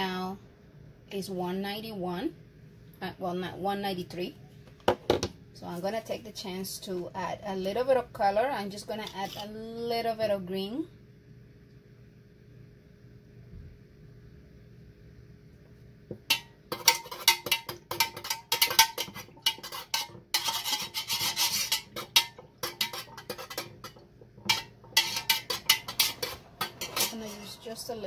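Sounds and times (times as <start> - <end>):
metal spoon scraping and tapping: 16.2 - 27.9.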